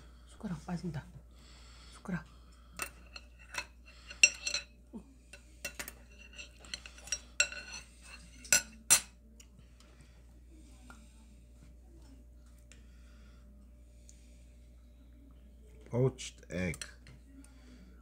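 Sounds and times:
metal chopsticks clinking on bowl: 0:02.8 - 0:04.7, 0:05.6 - 0:09.1.

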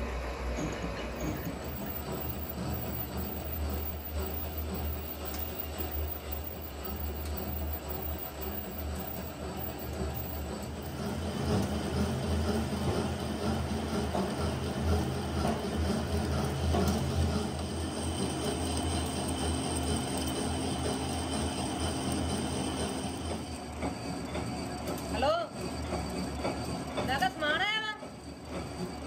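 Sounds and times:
lathe humming: 0:00.0 - 0:29.0.

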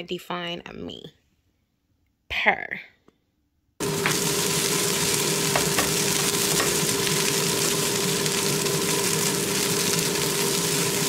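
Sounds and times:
food sizzling in frying pan: 0:03.8 - 0:11.0.

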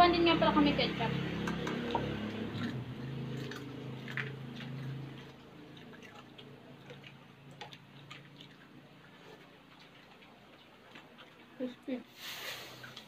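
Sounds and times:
person chewing: 0:01.4 - 0:11.7.

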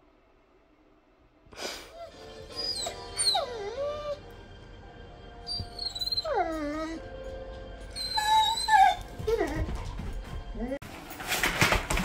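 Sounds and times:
dog whining: 0:01.9 - 0:04.3, 0:05.4 - 0:07.2, 0:07.9 - 0:09.9.

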